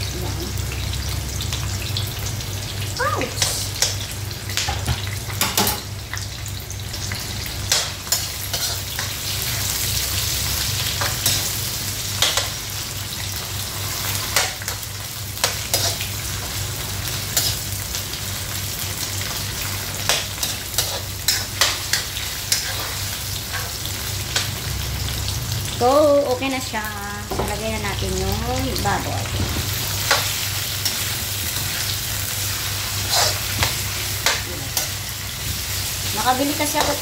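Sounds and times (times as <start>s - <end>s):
onions sizzling in hot oil: 0.0s - 37.0s
metal spoon scraping a pan: 7.7s - 9.1s, 20.0s - 23.8s, 33.0s - 35.0s.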